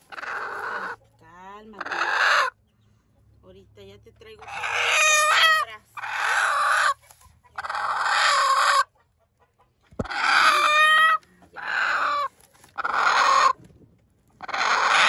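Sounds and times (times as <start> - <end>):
hen harsh calls: 0.0 - 1.0, 1.8 - 2.6, 4.4 - 7.0, 10.1 - 13.6, 14.4 - 15.0.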